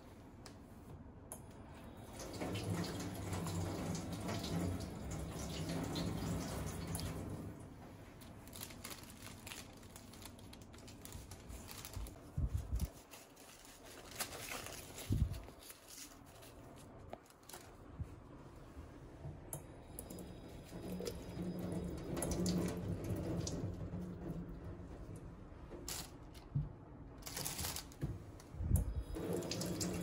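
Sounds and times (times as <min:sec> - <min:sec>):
paper and plastic bag rustling: 0:08.1 - 0:18.1, 0:25.8 - 0:26.5, 0:27.2 - 0:28.2.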